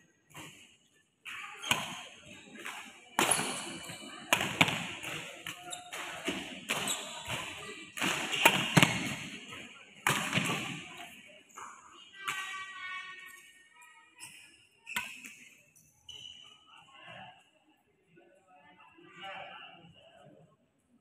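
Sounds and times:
racket hitting shuttlecock: 0:01.6 - 0:09.4, 0:10.0 - 0:10.8.

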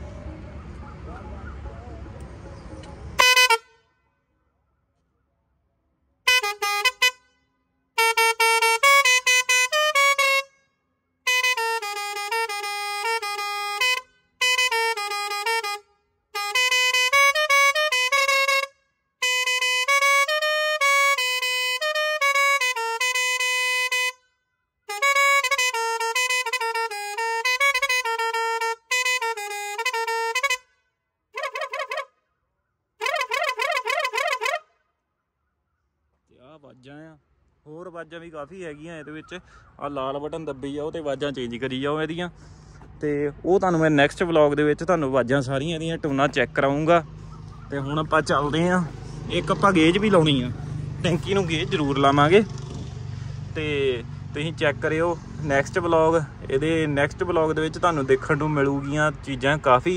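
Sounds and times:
musical air horn tunes: 0:03.2 - 0:03.8, 0:06.3 - 0:07.4, 0:08.0 - 0:10.6, 0:11.3 - 0:24.2, 0:24.9 - 0:30.7, 0:31.4 - 0:32.1, 0:33.0 - 0:34.7.

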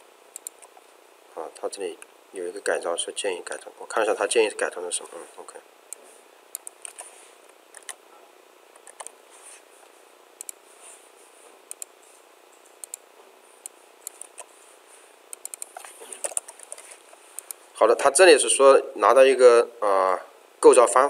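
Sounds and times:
computer mouse clicks: 0:00.3 - 0:00.8, 0:05.9 - 0:07.1, 0:07.7 - 0:08.0, 0:08.8 - 0:09.1, 0:10.4 - 0:10.6, 0:11.7 - 0:11.9, 0:12.8 - 0:13.0, 0:13.6 - 0:14.5, 0:15.3 - 0:17.6.

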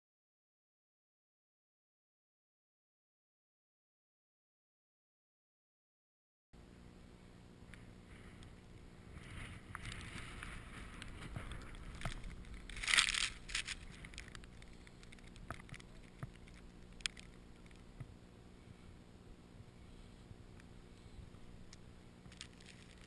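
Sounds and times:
small clicks: 0:09.7 - 0:18.1.

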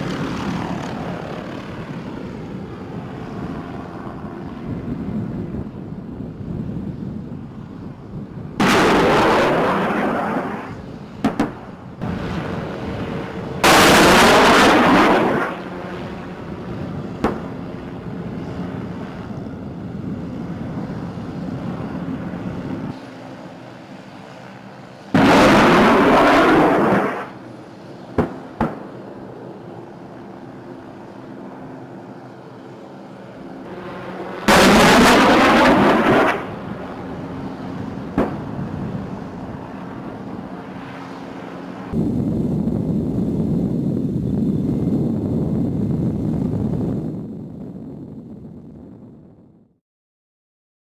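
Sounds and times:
helicopter engine and rotor hum: 0:00.0 - 0:49.7
rocket blasts: 0:08.6 - 0:16.2, 0:17.2 - 0:17.6, 0:25.1 - 0:27.4, 0:34.4 - 0:36.9, 0:38.1 - 0:39.1.

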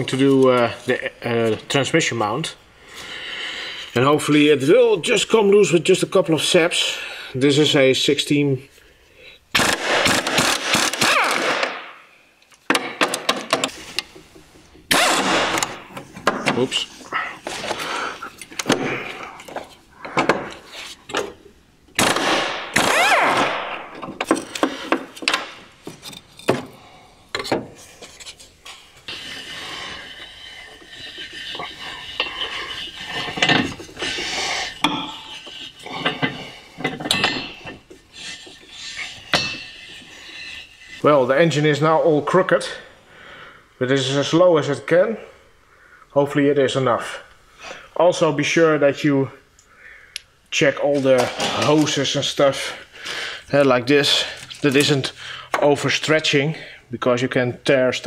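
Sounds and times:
pneumatic impact wrench: 0:09.6 - 0:11.9, 0:14.9 - 0:15.8, 0:22.0 - 0:23.8
hand tools clinking on car parts: 0:34.7 - 0:40.6
sharp metal clanks: 0:34.8 - 0:37.9, 0:39.3 - 0:39.9.

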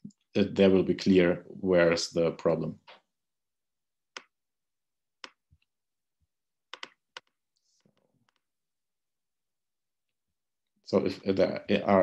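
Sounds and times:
computer key clicks: 0:06.7 - 0:07.3.

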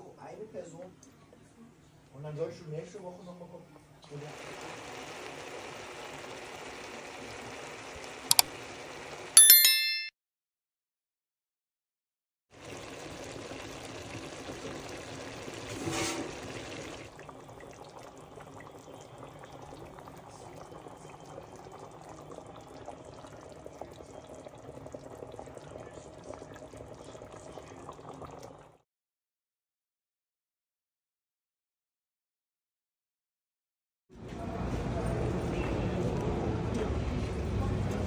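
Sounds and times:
sauce bubbling in a pot: 0:04.1 - 0:09.3, 0:12.5 - 0:28.8.

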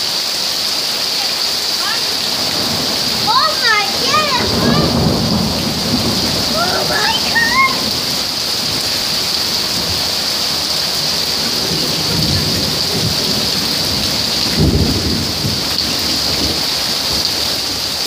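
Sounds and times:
hail and rain on concrete: 0:00.0 - 0:18.0
low rumbles: 0:02.1 - 0:15.8.

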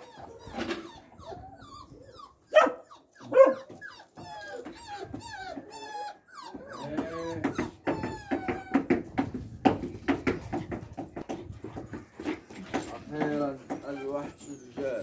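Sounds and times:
dogs whining and yelping: 0:00.0 - 0:15.0
loud dog barks: 0:02.5 - 0:03.6.

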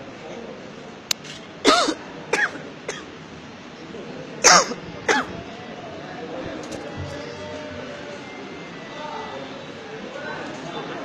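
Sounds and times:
person coughing: 0:01.7 - 0:03.1, 0:04.4 - 0:05.4.

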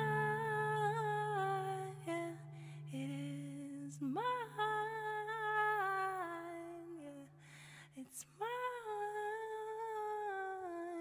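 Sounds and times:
low steady hum: 0:00.0 - 0:07.8.

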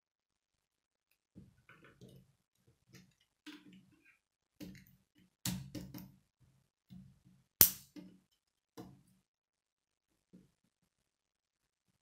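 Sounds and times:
sharp plastic snap: 0:07.6 - 0:08.0.

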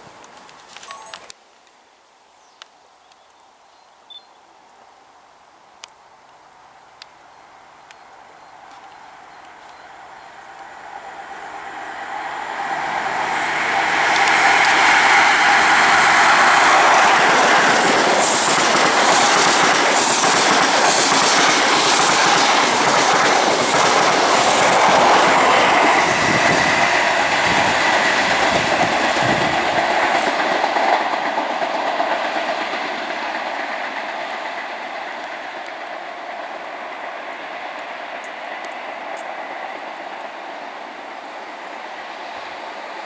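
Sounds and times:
passenger train passing: 0:06.6 - 0:43.0
wheels clattering over rail joints: 0:13.7 - 0:34.8.

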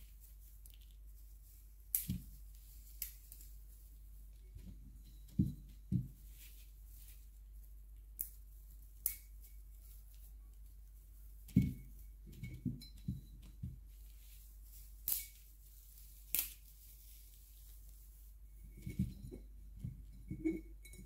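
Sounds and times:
dried stems crackling and rustling: 0:00.0 - 0:04.7, 0:13.9 - 0:18.4
stems snapping: 0:01.9 - 0:02.3, 0:02.9 - 0:03.5, 0:08.2 - 0:08.4, 0:09.0 - 0:09.3, 0:15.0 - 0:15.4, 0:16.3 - 0:16.7.

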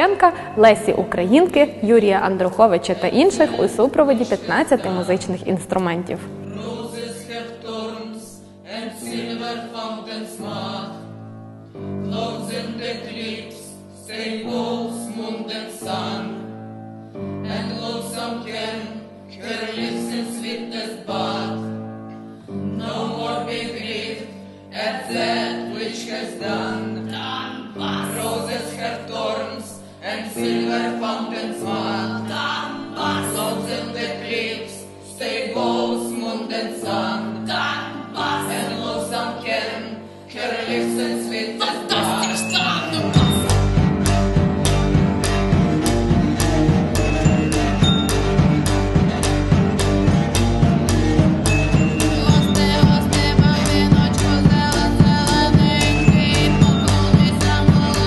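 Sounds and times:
women singing in ensemble: 0:02.4 - 0:05.6, 0:06.3 - 0:11.1, 0:12.1 - 0:16.5, 0:17.4 - 0:21.8, 0:22.7 - 0:43.5, 0:50.6 - 0:58.0
strings with double bass: 0:43.0 - 0:58.0.

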